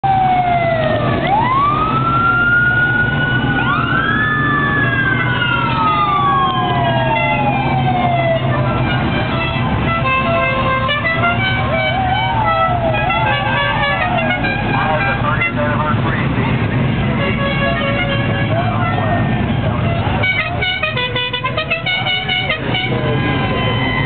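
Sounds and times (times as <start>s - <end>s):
siren yelping: 0.0s - 15.4s
car engines rumbling: 0.0s - 24.0s
sirens wailing: 0.0s - 24.0s
car horns honking: 8.3s - 16.2s, 16.9s - 24.0s.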